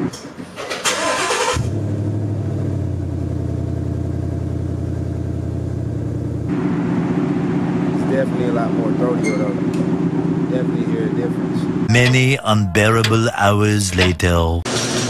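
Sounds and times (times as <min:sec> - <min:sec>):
car engine idling with deep rumble: 0:01.6 - 0:11.8.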